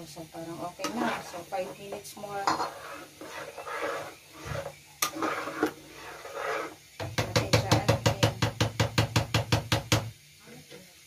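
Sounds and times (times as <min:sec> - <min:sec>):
metal spatula scraping a pot: 0:00.5 - 0:08.1.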